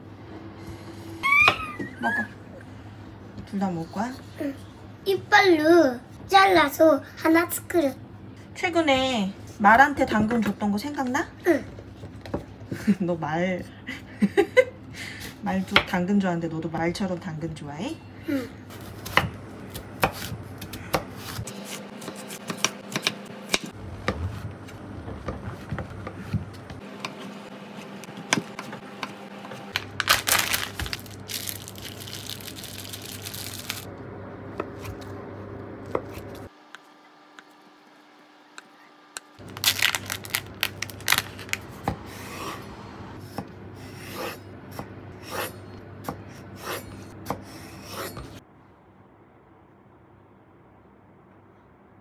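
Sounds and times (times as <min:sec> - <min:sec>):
knife chopping on wooden board: 0:20.0 - 0:24.5, 0:44.1 - 0:48.4.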